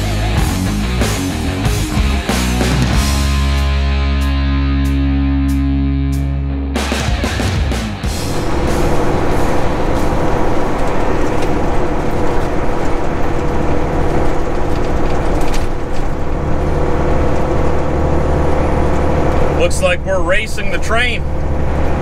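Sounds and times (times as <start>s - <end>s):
diesel engine drone: 0.0s - 22.0s
road and tyre noise: 6.8s - 22.0s.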